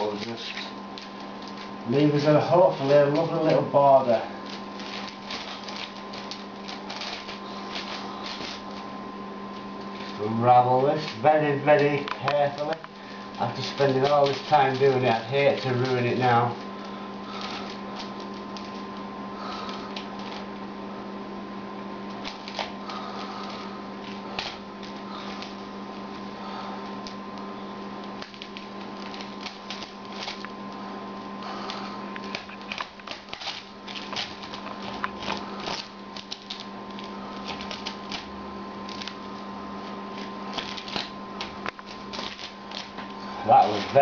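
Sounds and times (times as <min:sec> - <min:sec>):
masking tape ripping off canvas: 0:00.0 - 0:08.9, 0:09.8 - 0:20.5, 0:22.1 - 0:25.6, 0:28.0 - 0:30.5, 0:31.5 - 0:39.3, 0:40.1 - 0:44.0
electrical hum: 0:00.0 - 0:44.0.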